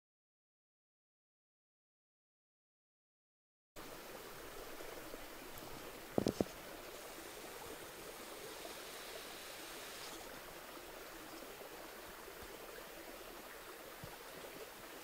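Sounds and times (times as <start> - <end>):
creek water rushing: 3.8 - 15.0.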